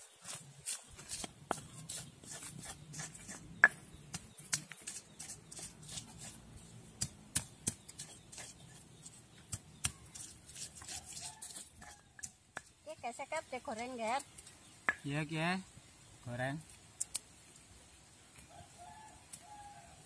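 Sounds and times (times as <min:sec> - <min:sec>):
stone pestle tapping in mortar: 0:03.6 - 0:05.0, 0:07.0 - 0:08.5.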